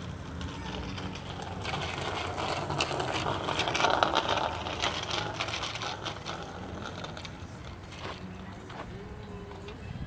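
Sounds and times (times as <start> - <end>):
bicycle wheels rattling and clicking: 0.0 - 8.8.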